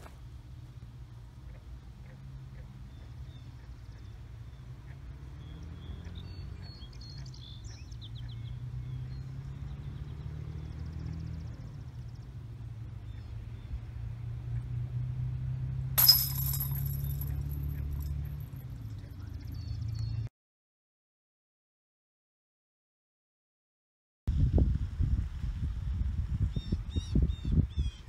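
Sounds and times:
chains jingling: 16.0 - 18.2
disc striking metal chains: 16.0 - 18.6.

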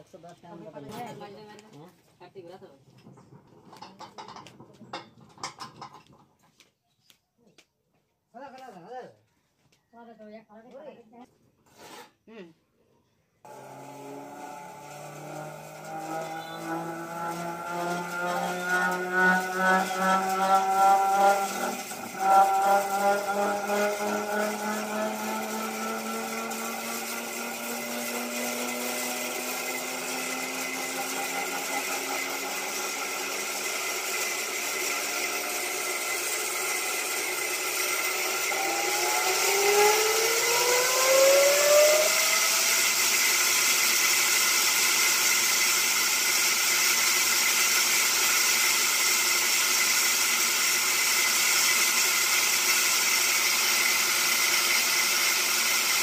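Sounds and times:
rising whine: 13.5 - 44.8
band saw mill running: 13.5 - 56.0.

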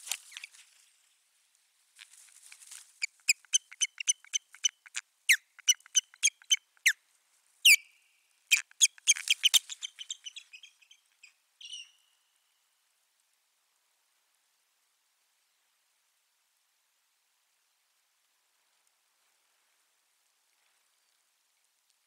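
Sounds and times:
osprey whistling calls: 3.0 - 7.0, 8.5 - 11.0.

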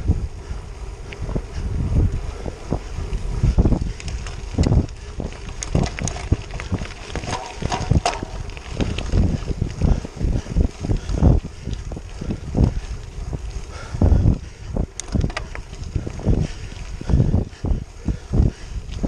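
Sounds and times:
wind buffeting microphone: 0.0 - 19.0
tyres on wet gravel: 3.9 - 13.7.

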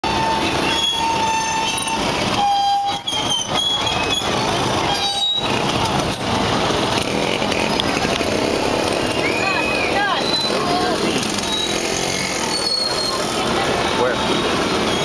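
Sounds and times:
high horn toots: 0.0 - 5.6
crowd noise: 0.0 - 15.0
traffic: 0.0 - 15.0.

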